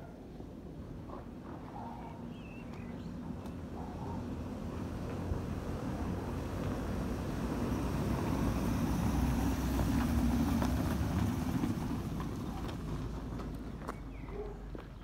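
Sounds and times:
passing vehicle rumble: 0:03.0 - 0:14.2.

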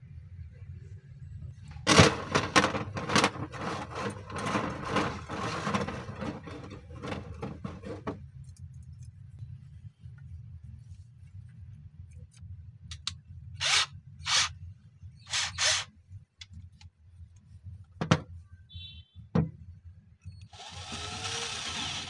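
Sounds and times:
steady low hum: 0:00.0 - 0:15.3
metal rods rattling on tabletop: 0:01.9 - 0:08.2.

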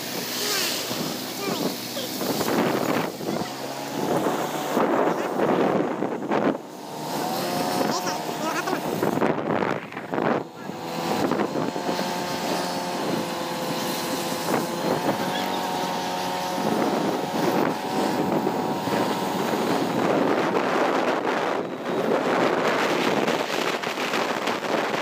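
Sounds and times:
motorcycle engine running: 0:00.0 - 0:25.0
wind rushing over microphone: 0:00.0 - 0:25.0.

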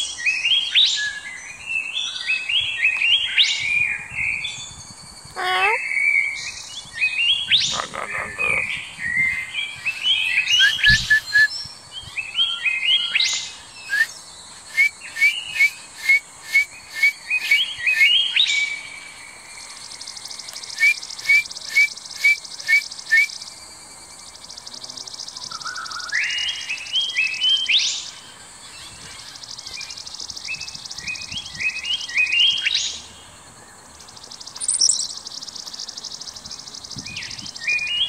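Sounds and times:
parrot whistles and chirps: 0:10.5 - 0:11.5, 0:13.9 - 0:14.1, 0:14.7 - 0:18.2, 0:20.8 - 0:23.3.

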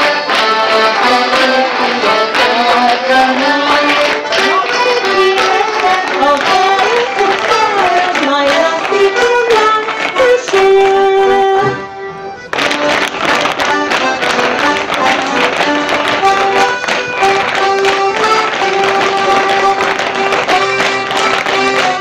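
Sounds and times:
folk band playing waltz: 0:00.0 - 0:22.0
clog steps tapping: 0:12.5 - 0:22.0.

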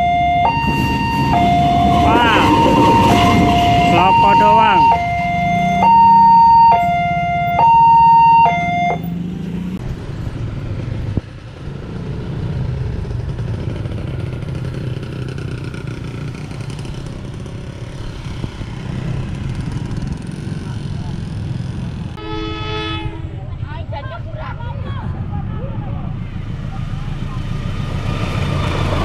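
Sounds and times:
level crossing warning alarm: 0:00.0 - 0:09.2
motorcycle engines running: 0:00.0 - 0:29.0.

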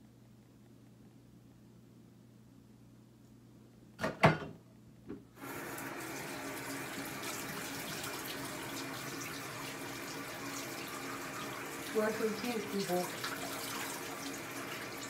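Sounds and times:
tap water running into sink: 0:05.4 - 0:15.0.

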